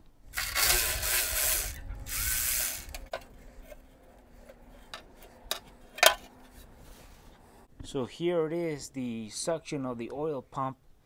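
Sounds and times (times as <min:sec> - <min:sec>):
electric ratchet running: 0:00.3 - 0:03.1.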